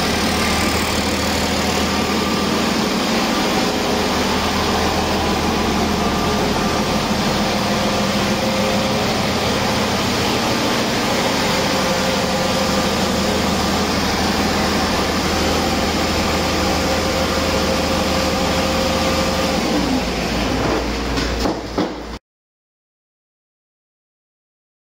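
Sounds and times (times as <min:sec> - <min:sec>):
diesel engine idling: 0:00.0 - 0:20.4.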